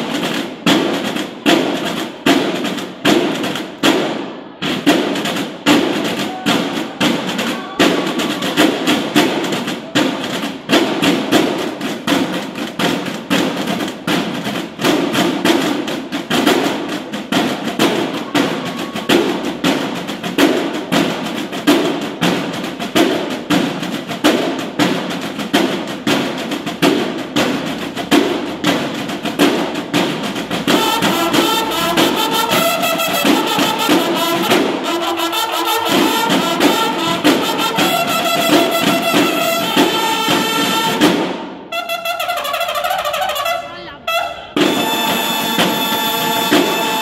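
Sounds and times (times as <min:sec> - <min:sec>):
field drums playing cadence: 0:00.0 - 0:47.0
bugles playing: 0:05.6 - 0:10.2, 0:17.6 - 0:19.9, 0:30.6 - 0:47.0.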